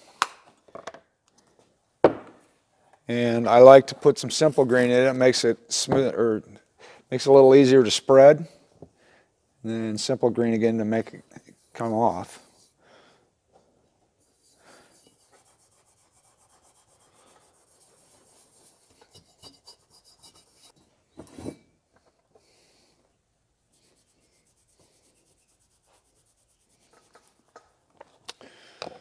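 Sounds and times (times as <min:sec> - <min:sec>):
knock: 0:02.0 - 0:02.4
cloth rubbing metal: 0:14.3 - 0:20.8.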